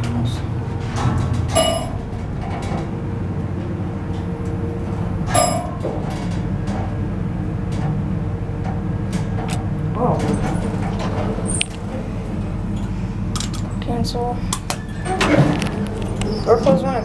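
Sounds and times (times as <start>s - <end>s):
elevator pump motor humming: 0.0s - 17.0s
faint constant whine: 0.0s - 17.0s
elevator bell ding: 1.5s - 2.1s, 5.2s - 5.9s.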